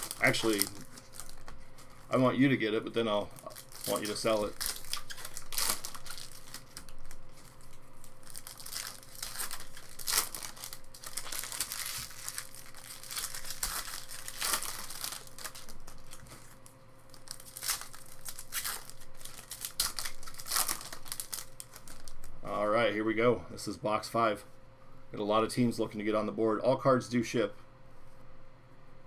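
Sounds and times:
foil wrapper crinkling and tearing: 0.0 - 22.6.

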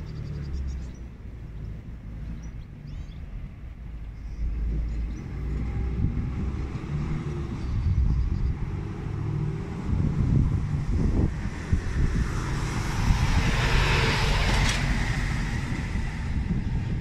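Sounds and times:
motor vehicle passing: 4.3 - 17.0.

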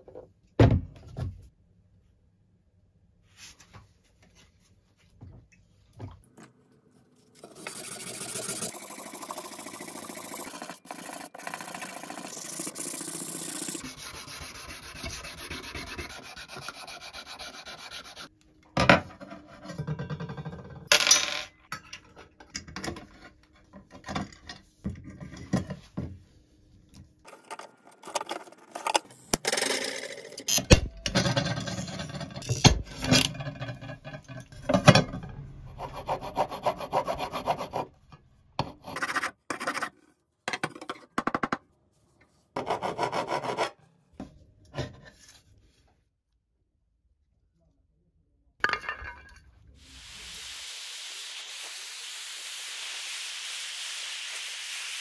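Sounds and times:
sanding metal: 12.1 - 18.3.

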